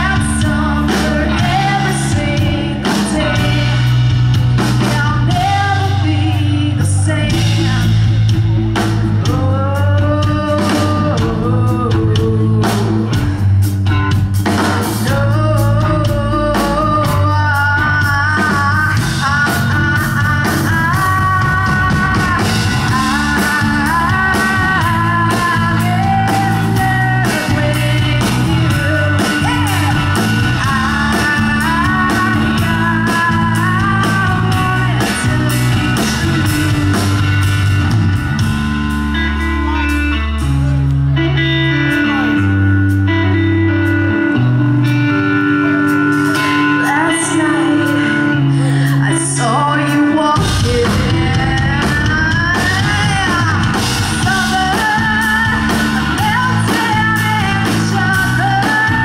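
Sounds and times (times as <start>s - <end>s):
woman singing: 0.0s - 13.6s, 14.6s - 37.6s, 46.2s - 59.0s
drum kit: 0.0s - 59.0s
electric bass: 0.0s - 59.0s
electric guitar: 0.0s - 59.0s.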